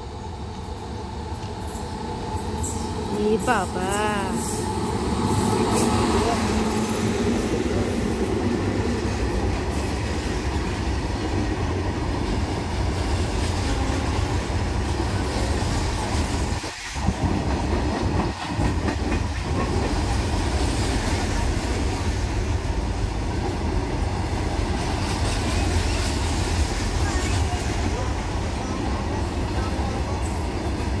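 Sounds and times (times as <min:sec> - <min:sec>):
freight train passing: 0:00.0 - 0:31.0.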